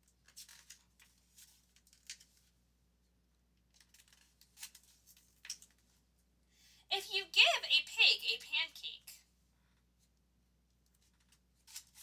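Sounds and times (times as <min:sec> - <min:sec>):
book pages turning: 0:00.1 - 0:02.5, 0:03.7 - 0:05.9, 0:11.0 - 0:12.0.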